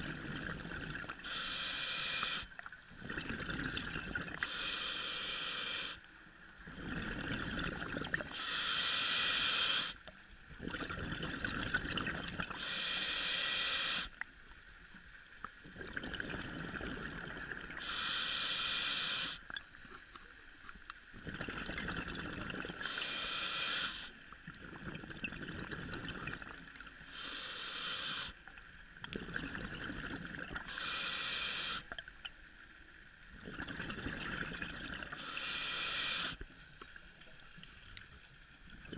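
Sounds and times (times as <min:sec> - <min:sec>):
regulator breath hissing: 0:01.2 - 0:02.5, 0:04.4 - 0:06.0, 0:08.3 - 0:10.0, 0:12.5 - 0:14.2, 0:17.8 - 0:19.5, 0:22.8 - 0:24.2, 0:27.0 - 0:28.4, 0:30.6 - 0:32.0, 0:35.1 - 0:37.5
exhaled bubbles rushing: 0:03.0 - 0:04.4, 0:06.7 - 0:08.3, 0:10.6 - 0:12.5, 0:15.6 - 0:17.8, 0:21.2 - 0:22.8, 0:29.1 - 0:30.7, 0:33.4 - 0:35.2.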